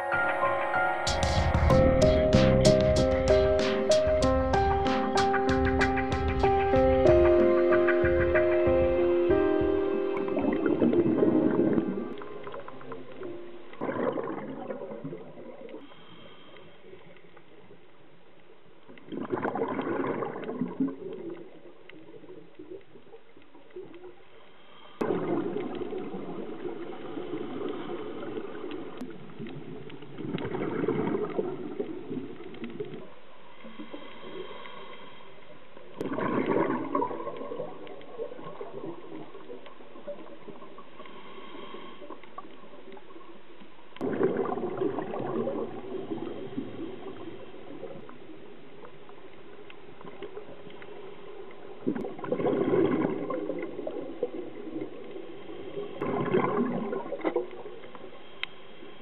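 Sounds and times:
underwater background: 0.0s - 59.0s
bubbles gurgling from regulator: 10.2s - 15.8s, 19.0s - 22.8s, 25.0s - 33.0s, 36.0s - 40.8s, 44.0s - 48.2s, 51.8s - 55.2s, 55.9s - 57.9s.

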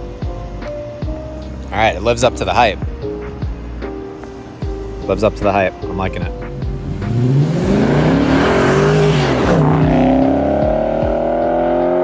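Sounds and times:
car exhaust accelerating past: 6.6s - 12.0s.

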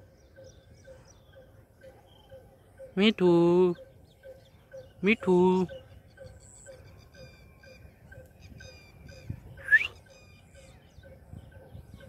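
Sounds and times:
birds chirping faintly: 0.0s - 12.0s.

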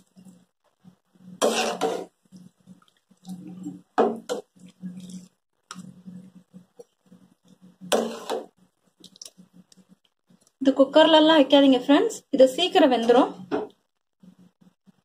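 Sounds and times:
metal spoon scraping steel pot: 1.4s - 2.1s, 7.9s - 8.5s.

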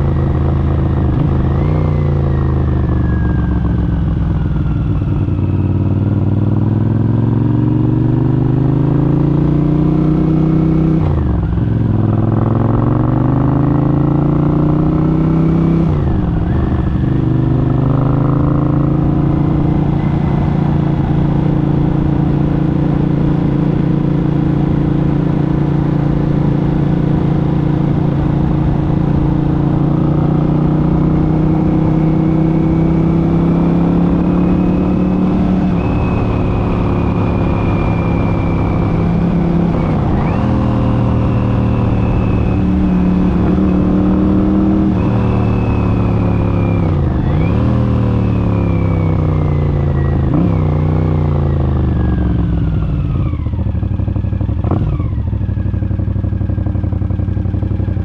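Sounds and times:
motorcycle engine running: 0.0s - 58.0s
transmission whine: 15.8s - 58.0s.

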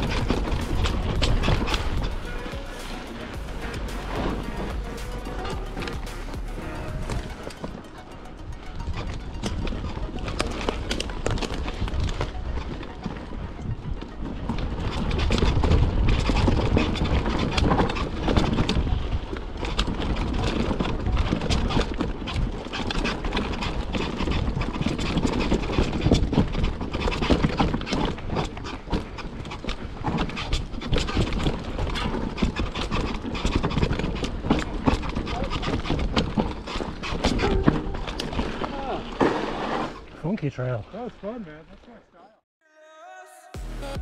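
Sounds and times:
low rumble: 0.0s - 7.9s
bike chain and frame clattering: 0.0s - 40.2s
tyres on dirt trail: 0.0s - 42.4s.

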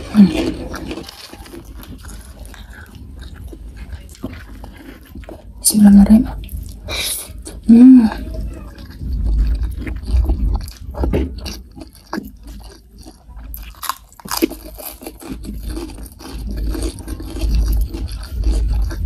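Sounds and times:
wet chewing: 0.0s - 19.0s
crunchy bites: 8.7s - 19.0s.

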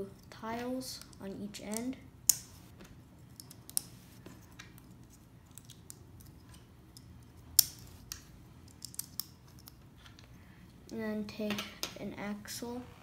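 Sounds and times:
plastic pieces clicking together: 4.5s - 9.8s.

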